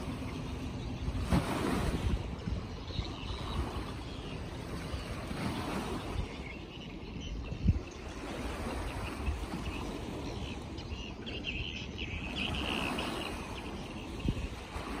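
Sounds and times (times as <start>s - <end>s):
wind rumble: 0.0s - 10.6s
water noise: 0.0s - 15.0s
bird chirps: 2.6s - 14.4s.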